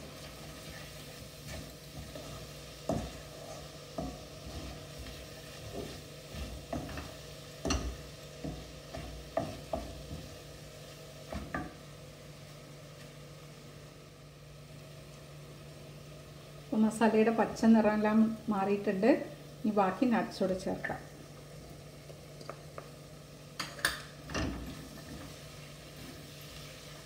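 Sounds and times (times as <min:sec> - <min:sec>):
masala sizzling: 0:00.0 - 0:27.0
spatula knocking and scraping pan: 0:00.1 - 0:10.4.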